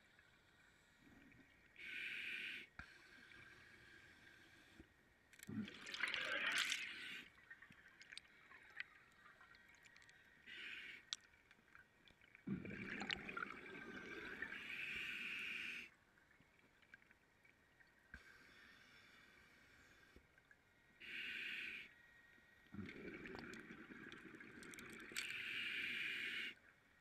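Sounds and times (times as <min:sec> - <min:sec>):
scuba regulator breathing underwater: 0:25.2 - 0:26.6.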